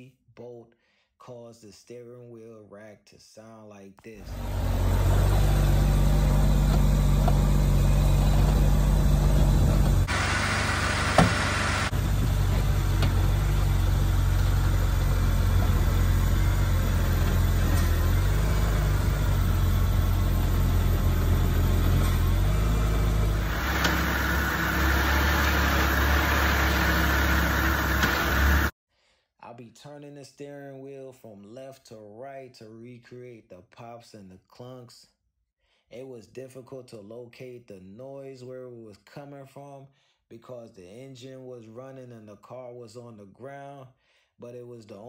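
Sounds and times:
steering rack clunk: 4.3s - 18.3s, 21.9s - 28.7s
car engine idling: 4.3s - 28.7s.

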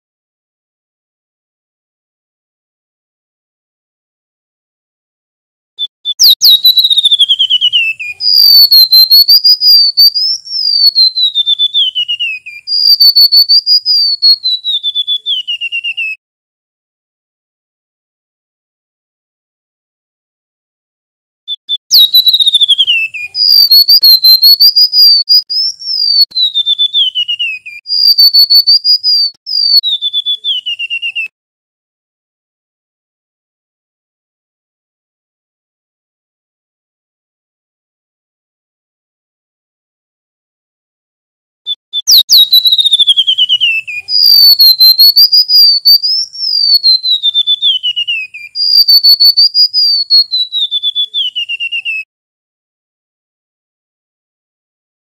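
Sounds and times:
bird singing whistled phrases: 5.8s - 16.2s, 21.5s - 31.3s, 41.7s - 52.1s.

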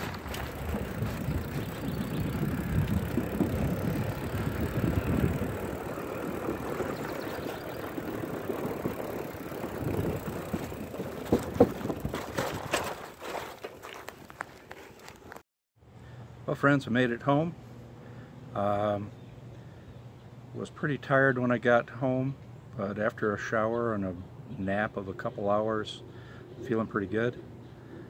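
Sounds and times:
bicycle tyres rumbling on boards: 0.0s - 15.4s
bike gear rattling: 0.0s - 15.4s.

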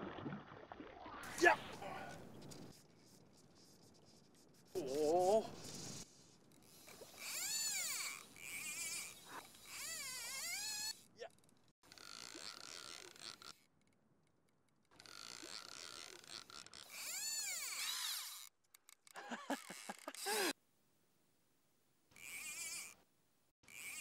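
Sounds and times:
fishing reel drag buzzing: 4.8s - 13.7s, 15.0s - 18.5s, 19.4s - 20.6s, 22.2s - 23.0s, 23.7s - 24.0s.

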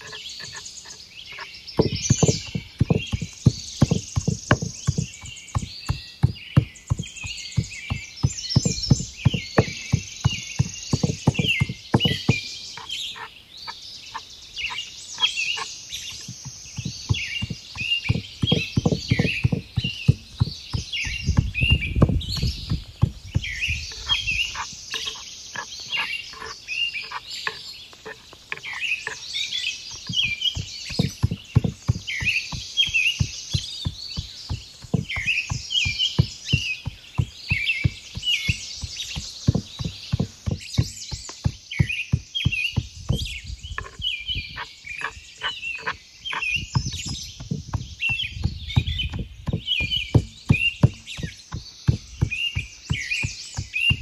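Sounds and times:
songbirds chirping: 0.0s - 54.0s
knife chopping on cutting board: 1.8s - 12.4s.

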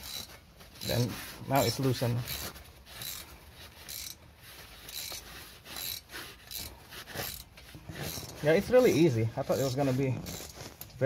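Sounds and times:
ratchet wrench clicking: 0.0s - 1.0s, 2.3s - 3.2s, 3.8s - 4.2s, 4.8s - 9.0s.

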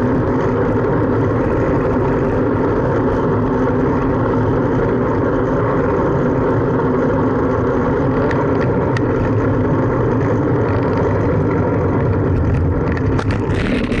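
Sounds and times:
road traffic noise: 0.0s - 14.0s
wind buffeting microphone: 8.2s - 14.0s.

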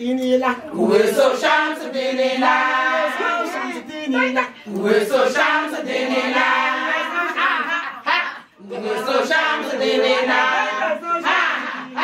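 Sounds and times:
group chanting: 0.6s - 12.0s.

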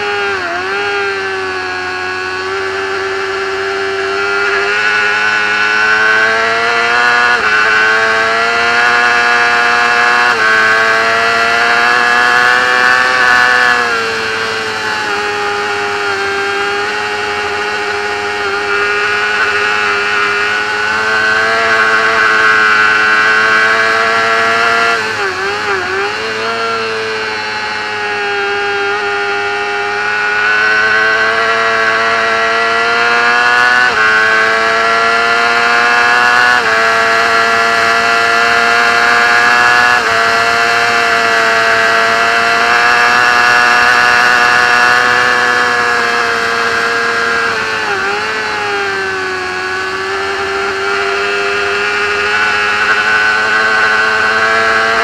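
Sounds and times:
motorcycle engine at high revs: 0.0s - 55.0s.

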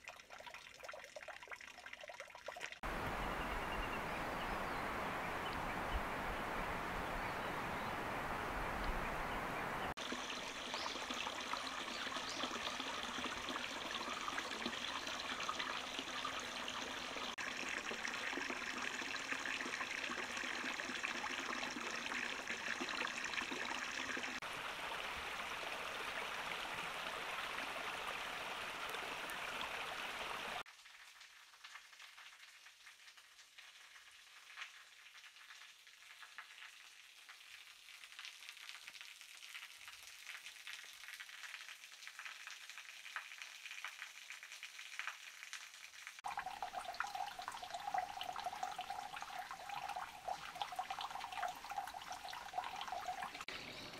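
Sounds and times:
water dripping: 0.0s - 53.9s
water trickling: 0.0s - 53.9s
flowing water rushing: 2.8s - 30.6s.

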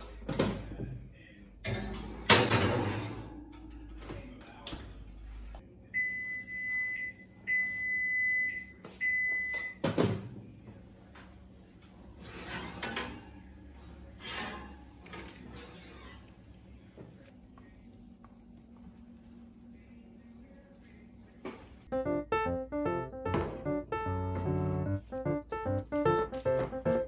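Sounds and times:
oven beeper long beeps: 5.9s - 9.8s.

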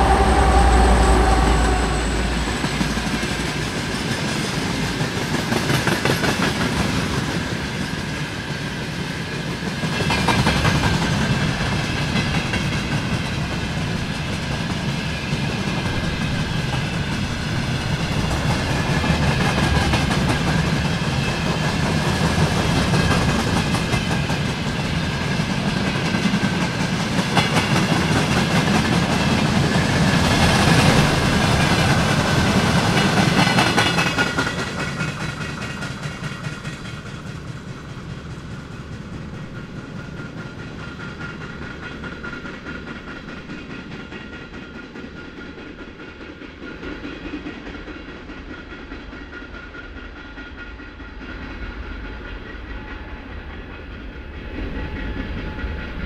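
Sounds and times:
thin high whine: 0.0s - 4.0s
freight train rumbling: 0.0s - 56.0s.

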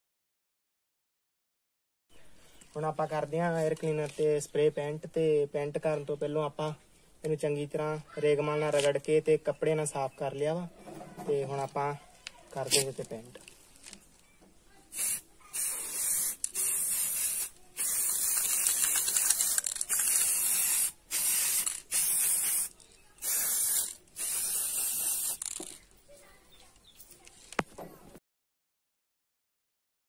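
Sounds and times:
spray paint can hissing: 14.9s - 25.8s.

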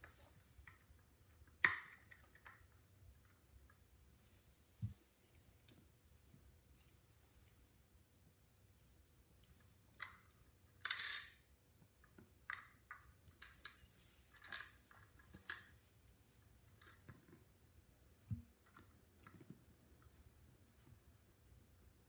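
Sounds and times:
plastic pieces clicking and tapping: 0.6s - 3.7s, 10.0s - 11.4s, 12.0s - 15.7s.

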